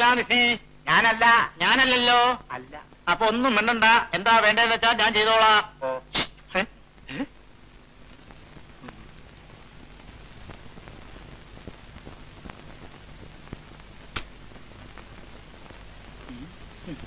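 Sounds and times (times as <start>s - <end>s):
soundtrack hiss: 0.0s - 17.0s
low hum: 6.8s - 17.0s
faint clicks: 11.6s - 15.1s.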